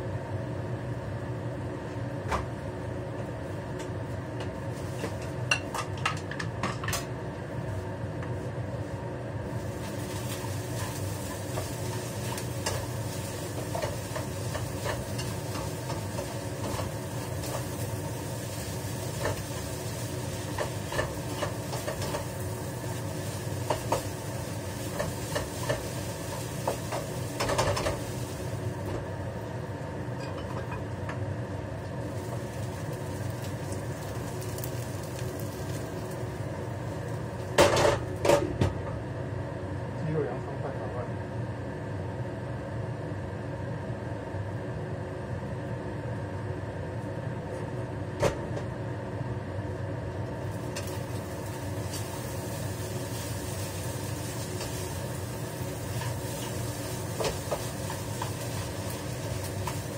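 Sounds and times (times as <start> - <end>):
food sizzling: 4.5 - 6.0, 9.4 - 38.2, 50.4 - 59.9.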